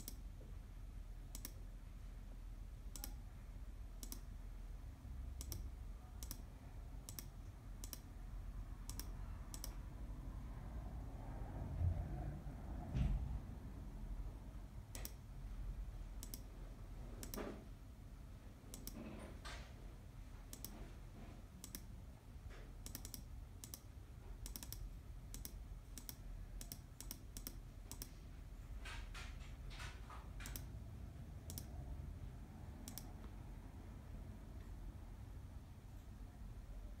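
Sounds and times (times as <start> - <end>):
mouse buttons clicking: 0.0 - 0.2, 1.3 - 1.6, 2.9 - 3.2, 4.0 - 4.4, 5.4 - 8.1, 8.8 - 9.8, 16.2 - 16.5, 17.2 - 17.5, 18.7 - 19.1, 20.5 - 20.8, 21.6 - 21.9, 22.8 - 28.2, 31.4 - 31.7, 32.8 - 33.1
low steady hum: 0.0 - 37.0.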